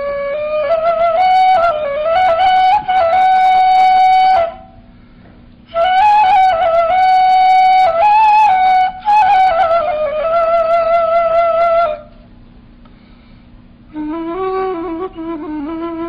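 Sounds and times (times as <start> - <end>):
end-blown reed flute melody: 0.0 - 4.8, 5.7 - 12.1.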